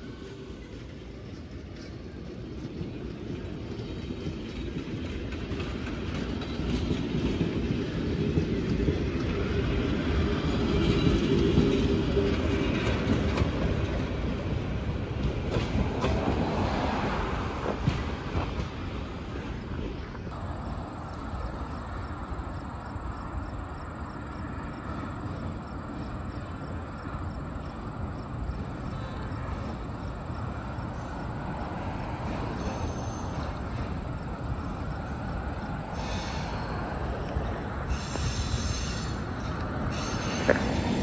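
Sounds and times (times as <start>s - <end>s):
train wheel squeals: 0.0s - 14.0s, 28.7s - 34.2s, 35.8s - 41.0s
diesel train rumble: 0.0s - 41.0s.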